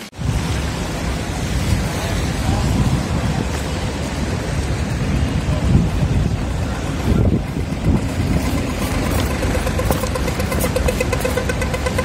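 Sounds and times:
street traffic rumbling: 0.0 - 12.0
crossing signal fast ticking: 7.7 - 12.0.

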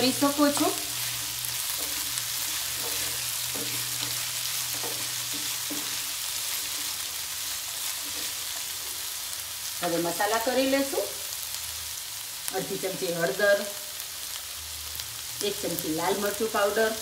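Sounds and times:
wooden spatula scraping: 0.0 - 9.0
vegetables sizzling in oil: 0.0 - 17.0.

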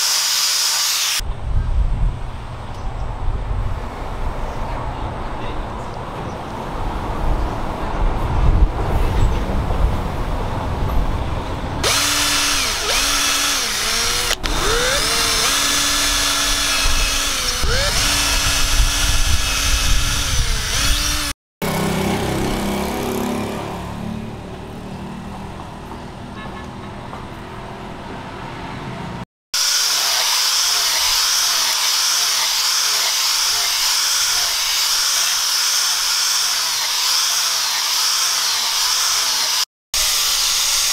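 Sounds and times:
cordless drill boring: 0.0 - 1.2, 11.8 - 21.3, 29.6 - 40.9
rotary sander whining: 0.0 - 1.2, 11.8 - 21.3, 29.6 - 40.9.

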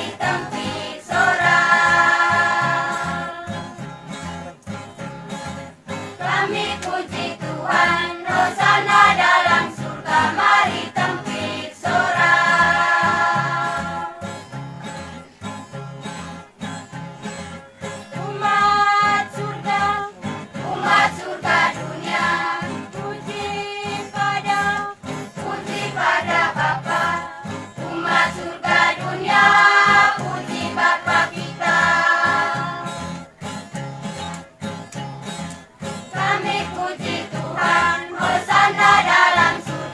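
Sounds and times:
choir singing: 0.0 - 3.9, 6.1 - 14.4, 18.2 - 33.2, 36.1 - 39.9
acoustic guitar: 0.0 - 39.9.

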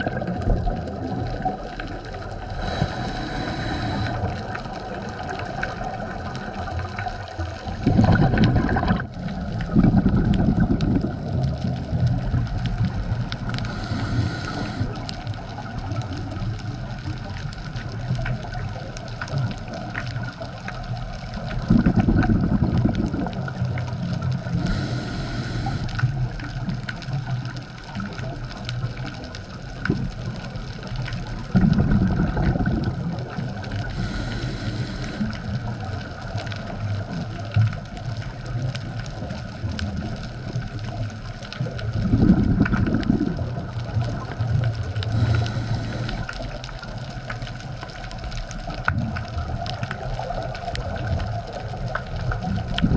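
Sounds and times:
exhale bubbles rumbling: 0.0 - 52.9
regulator inhale hiss: 2.4 - 4.6, 13.5 - 15.3, 24.5 - 26.2, 33.8 - 35.8, 45.0 - 46.7.

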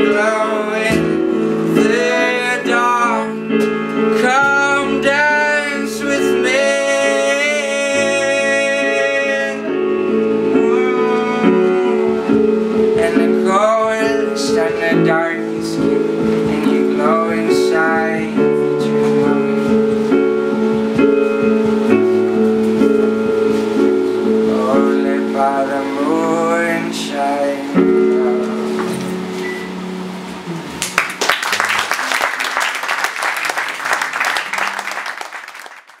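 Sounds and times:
man singing high notes: 0.0 - 19.8, 24.4 - 28.8
electric guitar: 0.0 - 31.4
audience applauding: 30.8 - 36.0.

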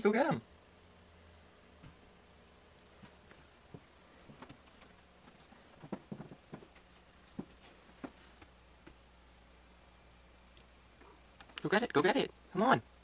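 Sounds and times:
low steady hum: 0.0 - 13.0
soft taps and knocks: 3.0 - 9.0.

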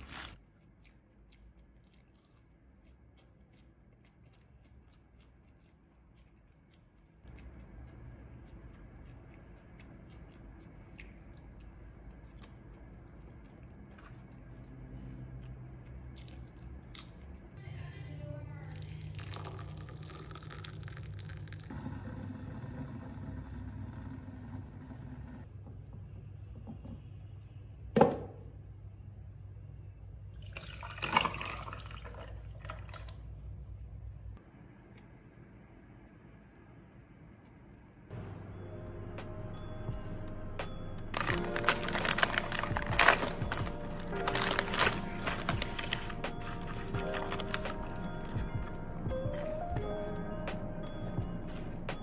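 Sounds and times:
person chewing food: 0.0 - 17.6, 19.2 - 21.8, 40.6 - 51.7
tea splashing onto ice: 18.7 - 21.7, 30.4 - 33.5, 41.1 - 46.1
low hum: 33.1 - 52.0.

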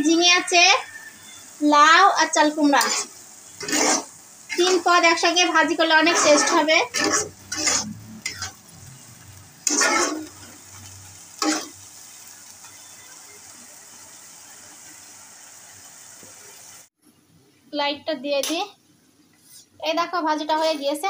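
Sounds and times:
vegetables sizzling in oil: 0.0 - 17.0
metal spatula scraping pan: 2.6 - 8.7, 9.6 - 11.8.

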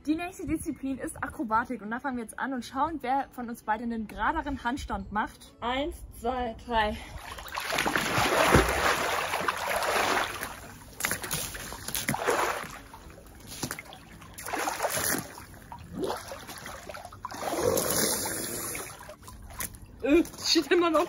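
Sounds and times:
water sloshing: 7.0 - 21.0
pool water splashing: 7.2 - 20.0.

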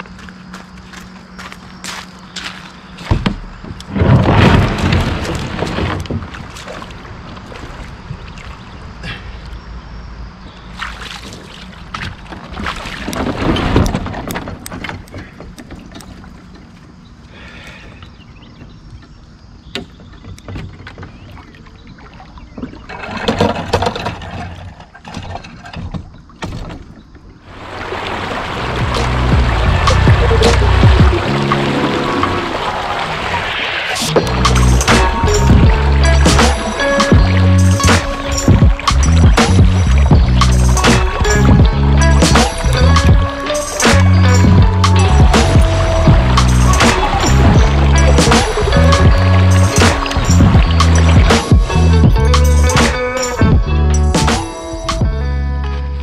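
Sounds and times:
wind buffeting microphone: 27.6 - 33.4.

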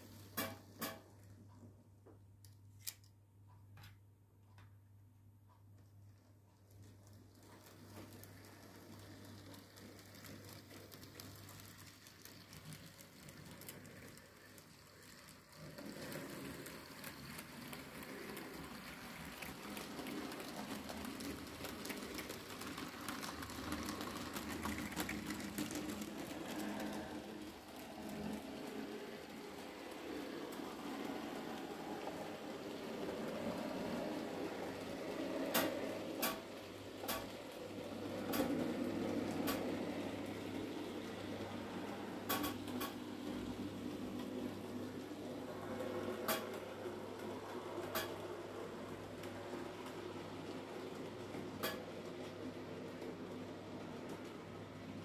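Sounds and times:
model train motor whirring: 6.8 - 37.6.

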